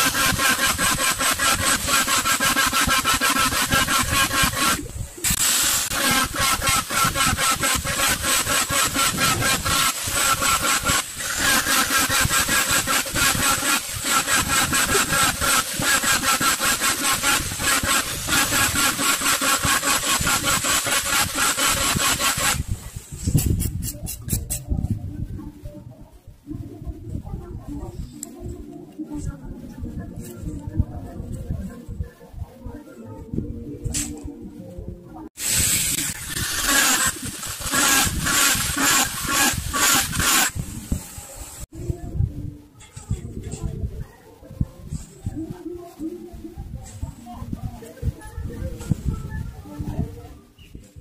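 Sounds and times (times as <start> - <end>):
hand saw rasping through pipe: 0.0 - 22.6, 35.4 - 40.6.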